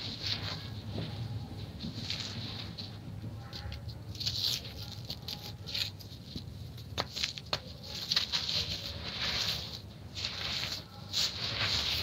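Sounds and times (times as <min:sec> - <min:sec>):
sand and cement crunching: 0:06.9 - 0:12.0.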